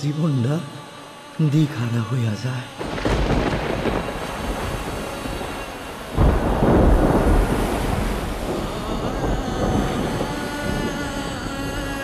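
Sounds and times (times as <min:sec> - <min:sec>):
wind: 0:00.0 - 0:12.0
thunder rumbling: 0:02.8 - 0:12.0.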